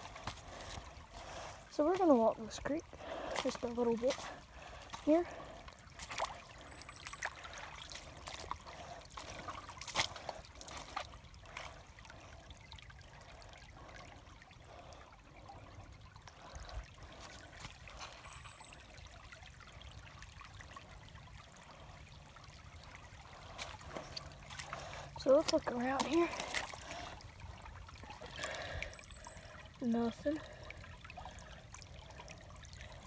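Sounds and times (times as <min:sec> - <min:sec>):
footsteps on wet stones: 0:00.0 - 0:11.8, 0:17.1 - 0:18.6, 0:23.4 - 0:27.3
creek trickling over rocks: 0:00.0 - 0:33.0.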